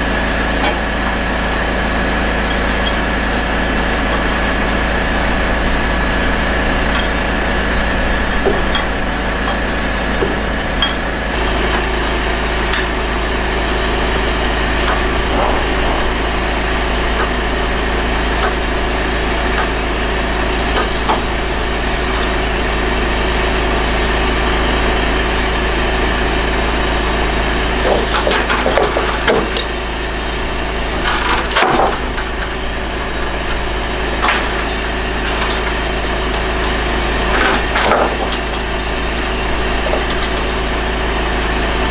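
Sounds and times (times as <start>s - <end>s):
engine idling: 0.0s - 41.9s
metal chains clanking: 0.6s - 19.7s, 26.3s - 29.8s, 30.4s - 36.4s, 37.3s - 40.6s.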